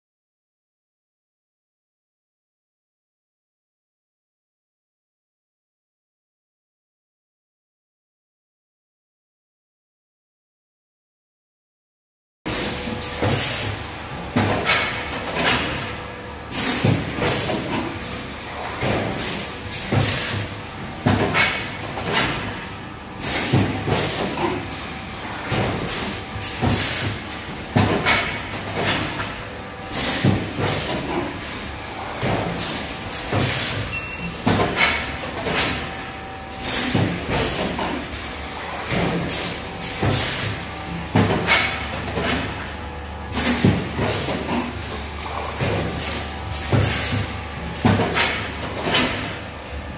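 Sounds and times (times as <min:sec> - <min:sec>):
pneumatic hisses of exhaust air: 0:12.5 - 0:13.8, 0:16.5 - 0:17.9, 0:18.6 - 0:20.5, 0:23.2 - 0:24.6, 0:25.2 - 0:27.2, 0:29.9 - 0:31.4, 0:32.0 - 0:33.9, 0:36.5 - 0:40.6, 0:43.3 - 0:47.3
steady machine hum: 0:12.5 - 0:49.9.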